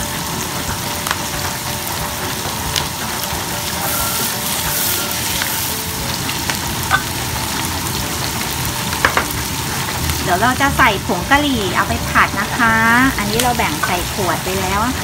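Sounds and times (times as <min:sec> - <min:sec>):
vegetables sizzling in hot oil: 0:00.0 - 0:15.0
spatula scraping a pan: 0:03.7 - 0:05.8.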